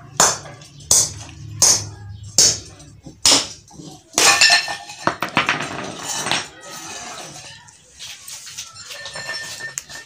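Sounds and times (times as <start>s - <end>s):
clay pot breaking: 0.2s - 6.6s.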